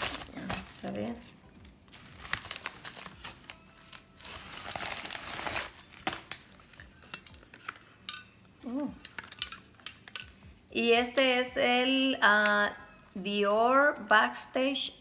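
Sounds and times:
padded bag rustling and crinkling: 0:00.0 - 0:06.6.

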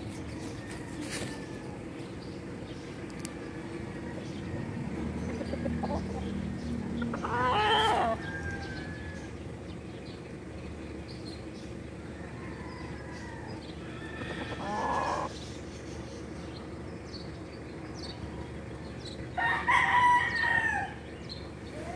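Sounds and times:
rooster crowing: 0:00.6 - 0:02.0, 0:07.1 - 0:09.5, 0:12.0 - 0:15.3, 0:19.3 - 0:21.1.

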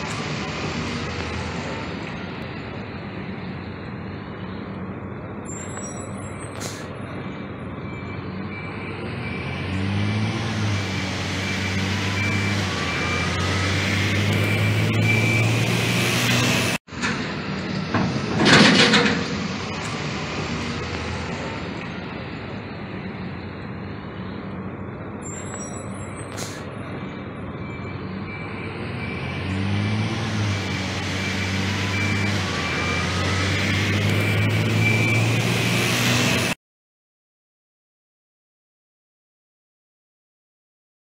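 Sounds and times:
heavy vehicle engine running: 0:00.0 - 0:36.6
air brakes hissing: 0:06.5 - 0:07.0, 0:26.2 - 0:26.7
faint repeated beep: 0:07.8 - 0:09.7, 0:14.3 - 0:15.6, 0:25.2 - 0:26.3, 0:27.5 - 0:29.4, 0:31.2 - 0:33.2, 0:34.1 - 0:35.5.

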